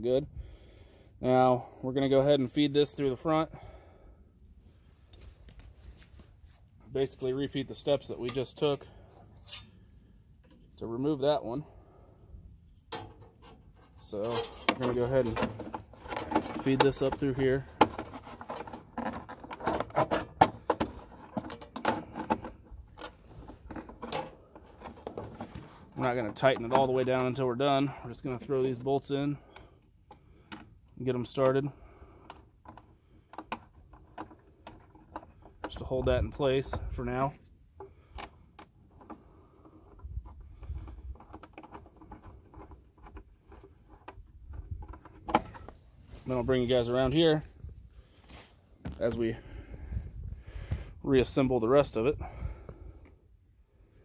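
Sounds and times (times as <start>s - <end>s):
cable clicking and rattling in plastic: 14.3s - 27.4s.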